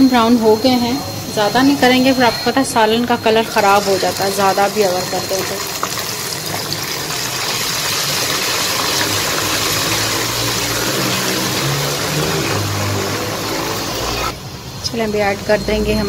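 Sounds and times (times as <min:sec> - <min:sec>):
onions sizzling in hot oil: 0:02.6 - 0:14.4.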